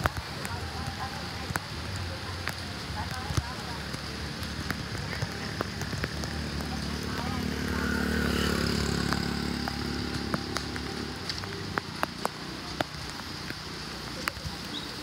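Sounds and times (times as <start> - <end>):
rain pattering: 0.0 - 15.0
sharp drips and ticks: 0.0 - 15.0
vehicle engine running: 3.6 - 13.4.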